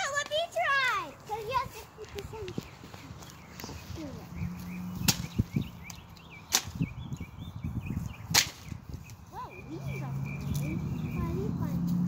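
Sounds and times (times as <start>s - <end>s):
pole striking tree branches: 5.0s - 7.0s, 8.2s - 9.2s.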